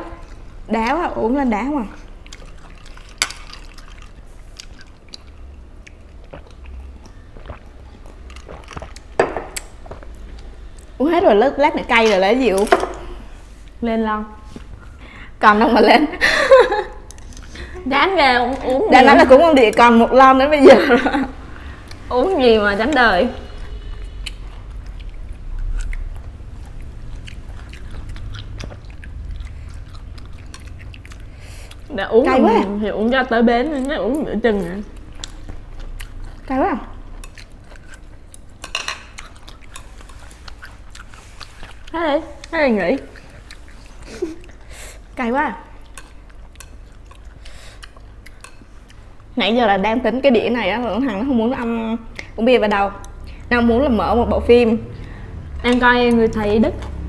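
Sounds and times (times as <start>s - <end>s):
person chewing: 1.9s - 11.0s, 16.9s - 17.9s, 21.6s - 22.1s, 22.8s - 49.3s
sipping and swallowing: 2.1s - 10.1s.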